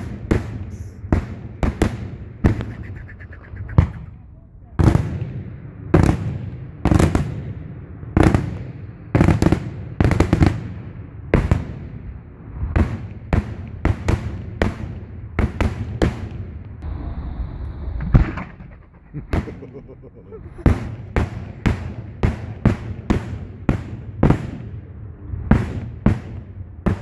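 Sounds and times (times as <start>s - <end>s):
firework whistle: 0.6s - 1.0s, 2.5s - 4.1s
fireworks bangs: 12.7s - 17.1s, 17.8s - 24.8s, 25.4s - 27.0s.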